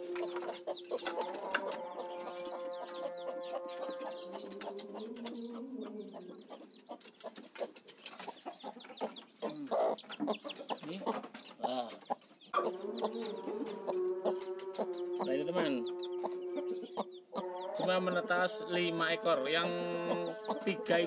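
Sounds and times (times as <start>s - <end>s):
chicks peeping: 0.0s - 21.0s
hen calling in long notes: 12.6s - 21.0s.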